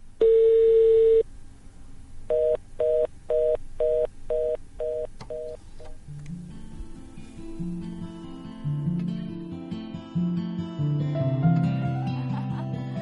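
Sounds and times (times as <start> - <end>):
phone keypad beeps: 0.2 - 1.2, 2.3 - 5.6
telephone dial tone: 0.2 - 1.2, 2.3 - 5.6
soft music: 6.0 - 13.0.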